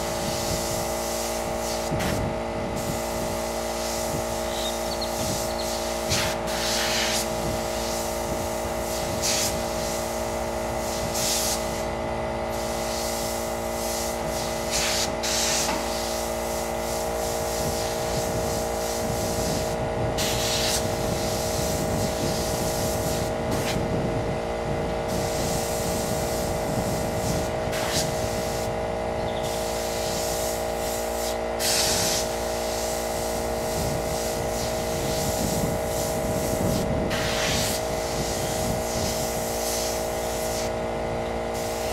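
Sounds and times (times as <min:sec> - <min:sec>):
air compressor hum: 0:00.0 - 0:41.9
airbrush spraying hisses: 0:00.2 - 0:02.2, 0:02.8 - 0:11.9, 0:12.5 - 0:23.8, 0:25.1 - 0:28.7, 0:29.4 - 0:40.7, 0:41.5 - 0:41.9.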